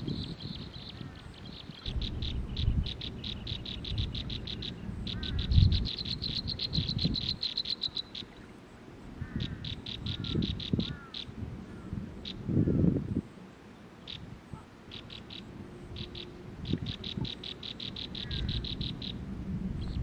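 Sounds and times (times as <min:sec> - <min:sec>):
nestlings chirping: 0:00.0 - 0:08.6, 0:09.3 - 0:11.3, 0:14.9 - 0:19.2.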